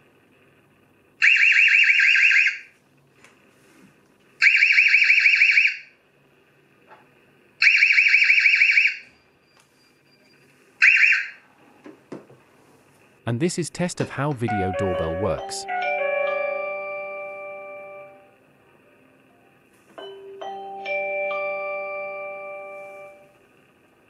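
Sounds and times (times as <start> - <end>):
high warbling alarm siren: 10.8 - 11.4, 14.5 - 18.2.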